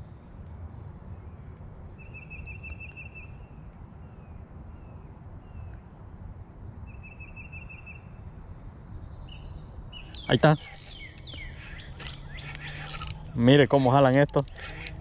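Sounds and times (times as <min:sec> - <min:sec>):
high-pitched wildlife trills: 0:08.8 - 0:15.0.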